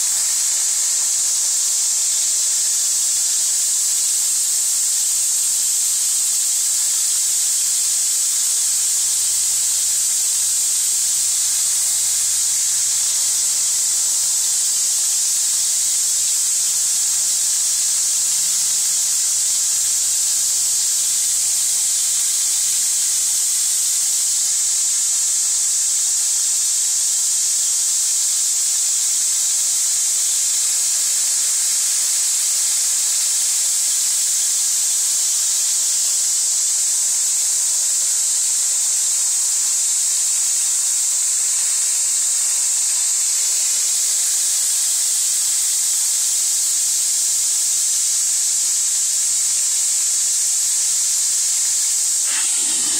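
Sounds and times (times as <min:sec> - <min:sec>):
water spraying into tub: 0:51.2 - 0:52.9.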